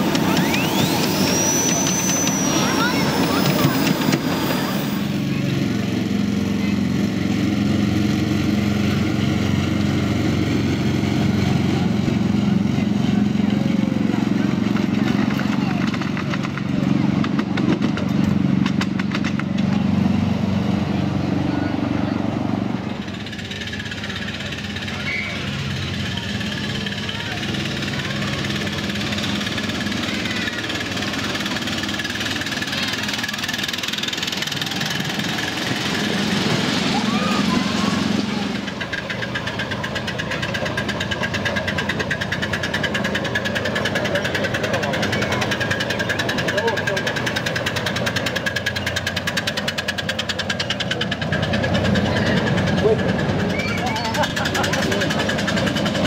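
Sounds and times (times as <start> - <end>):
miniature locomotive engine running: 0.0 - 56.0.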